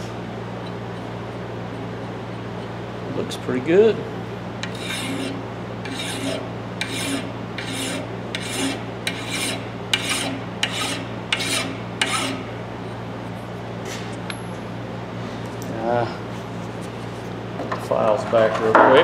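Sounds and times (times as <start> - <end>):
steady low hum: 0.0 - 19.0
file rasping on steel: 4.6 - 12.5.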